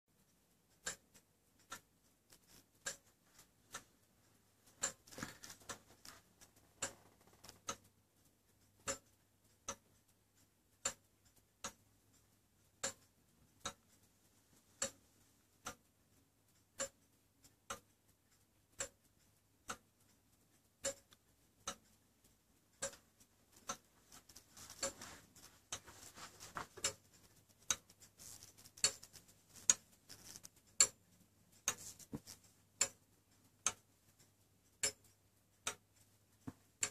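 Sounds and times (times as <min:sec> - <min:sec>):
clock ticking: 0:00.1 - 0:36.9
rustling handling noise: 0:23.9 - 0:27.3.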